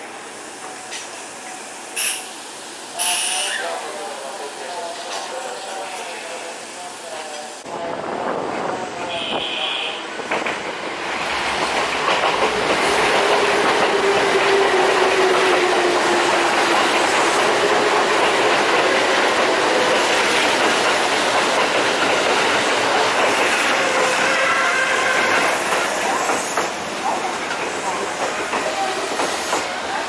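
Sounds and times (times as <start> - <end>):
train wheels rumbling on rails: 7.3 - 30.0.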